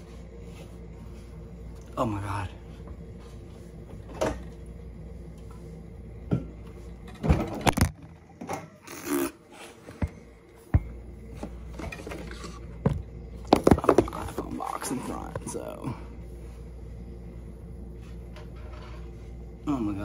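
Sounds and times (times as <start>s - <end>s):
handling noise rubbing and scraping: 11.3s - 12.8s.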